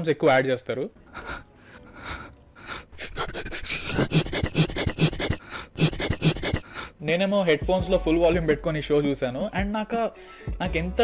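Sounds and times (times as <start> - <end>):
man panting and gasping: 1.1 - 7.0.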